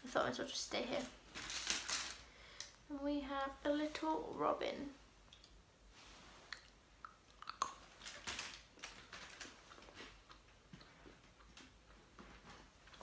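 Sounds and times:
soft clicks and crackles: 1.0s - 2.8s
faint chewing: 6.5s - 8.1s, 9.7s - 12.1s.

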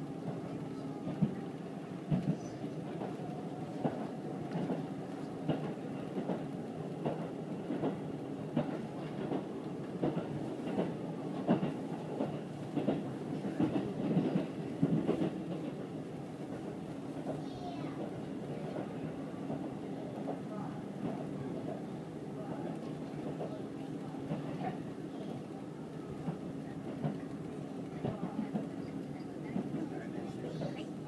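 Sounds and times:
train rumbling: 0.0s - 31.0s.

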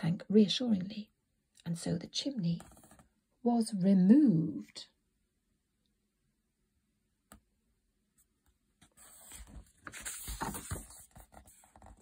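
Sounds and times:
paper page rustling: 8.8s - 12.0s.

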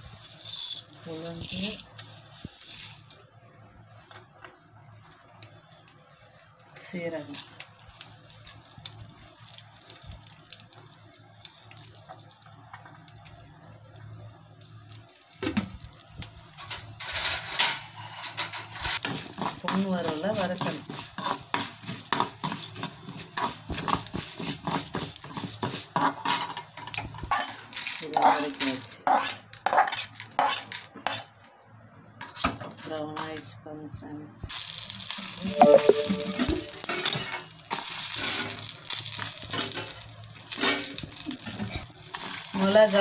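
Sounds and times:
oil sizzling: 0.0s - 30.8s, 34.5s - 43.0s
metal spoon scraping pan: 27.3s - 31.3s.

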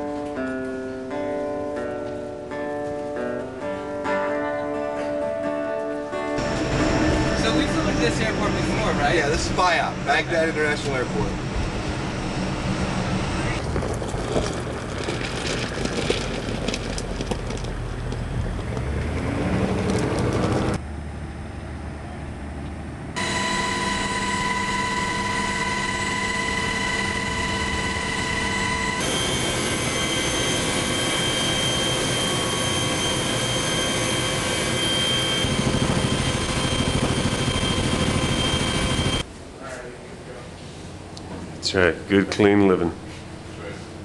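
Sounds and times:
helicopter turbine whine: 6.4s - 13.8s, 23.2s - 39.3s
helicopter rotor noise: 6.4s - 18.5s, 23.2s - 39.3s.

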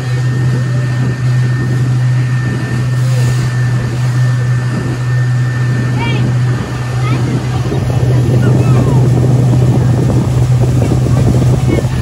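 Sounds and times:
motorboat engine drone: 0.0s - 12.0s
rushing water: 0.0s - 12.0s
wind: 0.0s - 12.0s.

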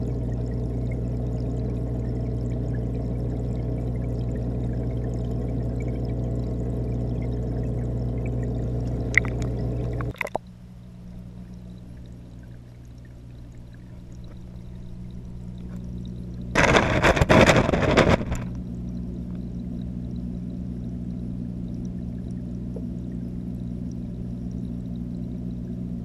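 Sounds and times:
underwater watery rush: 0.0s - 20.0s
aquarium filter humming: 0.0s - 26.0s.

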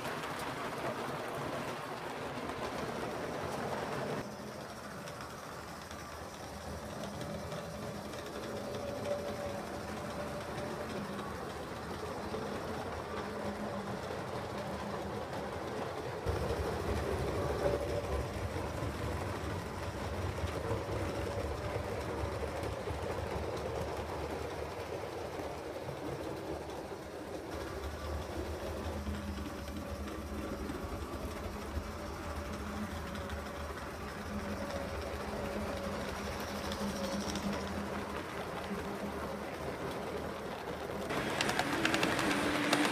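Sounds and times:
model train rumbling on track: 0.0s - 42.9s.

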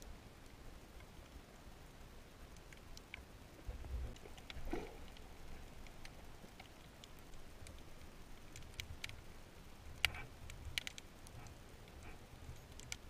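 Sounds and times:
muffled underwater rumble: 3.6s - 5.7s
sharp clicks: 12.6s - 13.0s.

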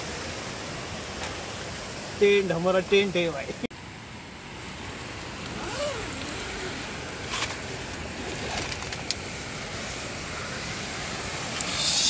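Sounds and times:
waterfall rushing: 4.9s - 12.0s.

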